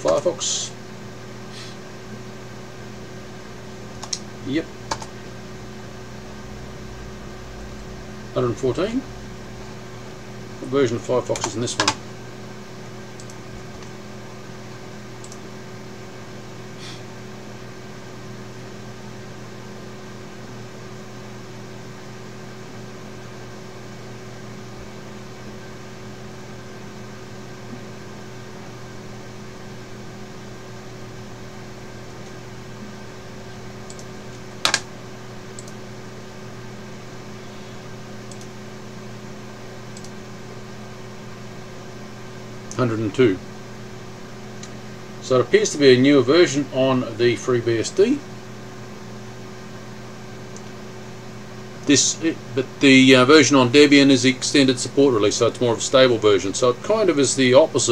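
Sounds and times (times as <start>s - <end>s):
computer equipment humming: 0.0s - 57.9s
sharp click: 4.0s - 4.2s.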